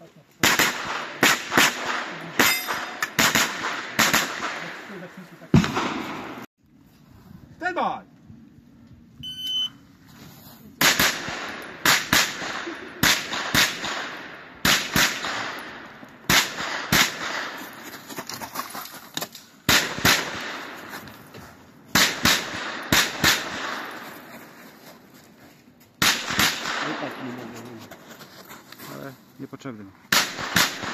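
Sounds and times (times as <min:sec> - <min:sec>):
carbine gunshots: 0:00.4 - 0:06.5, 0:10.8 - 0:17.6, 0:19.7 - 0:20.8, 0:21.9 - 0:24.0, 0:26.0 - 0:27.2, 0:30.1 - 0:30.9.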